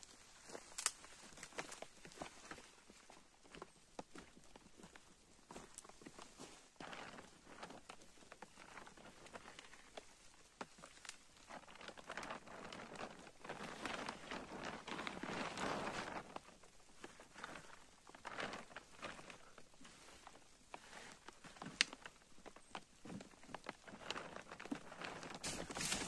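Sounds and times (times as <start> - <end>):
dry fronds rustling and crackling: 0.0 - 26.0.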